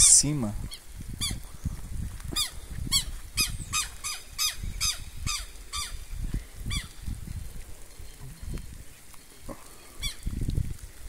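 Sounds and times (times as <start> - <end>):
bird harsh alarm calls: 2.4 - 6.0.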